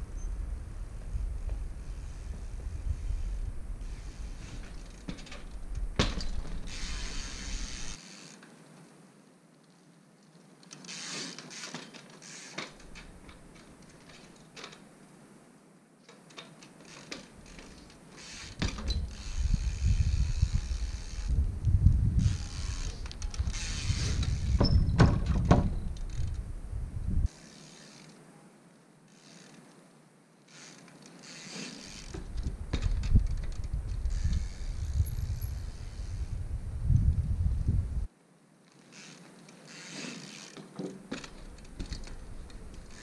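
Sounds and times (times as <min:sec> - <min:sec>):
bike freewheel ratchet clicking: 0:03.0 - 0:08.4, 0:10.8 - 0:13.2, 0:16.8 - 0:21.4, 0:22.2 - 0:24.8, 0:25.9 - 0:26.4, 0:29.1 - 0:29.6, 0:30.5 - 0:36.4, 0:38.8 - 0:43.0.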